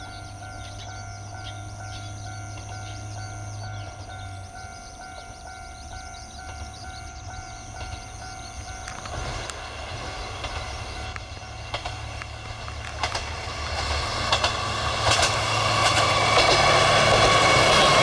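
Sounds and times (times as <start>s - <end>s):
pulsing ringing: 0.0s - 9.5s
diesel railcar rumble: 0.0s - 18.0s
sharp rail clicks: 8.8s - 17.8s.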